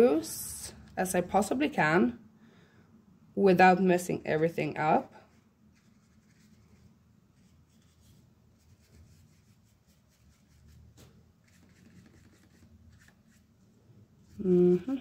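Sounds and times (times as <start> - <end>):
low room hum: 0.0 - 15.0
paintbrush scratching on paper: 5.2 - 13.6.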